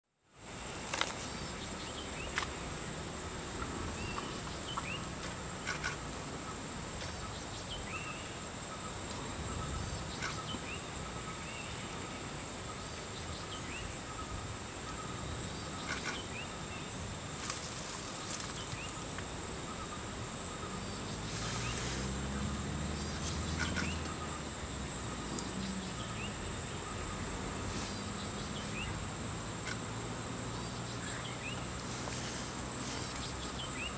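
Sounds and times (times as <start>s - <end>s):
high-pitched insect drone: 1.2s - 33.9s
bird chirps: 18.2s - 24.6s, 25.3s - 33.9s.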